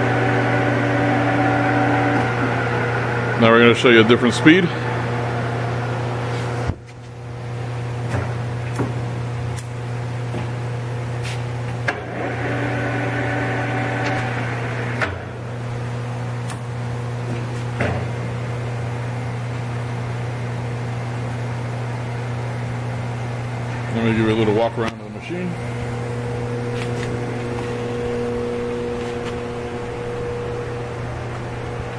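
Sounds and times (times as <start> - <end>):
whining tone: 0.0 - 6.1, 25.5 - 31.9
lathe humming: 0.0 - 6.6, 11.9 - 17.2, 23.4 - 31.9.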